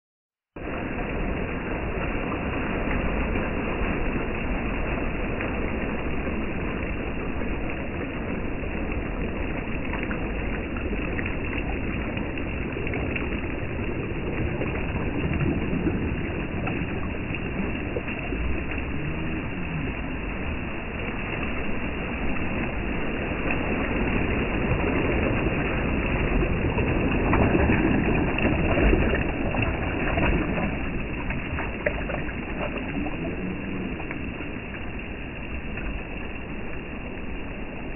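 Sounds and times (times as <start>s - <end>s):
low rumble: 0.6s - 37.9s.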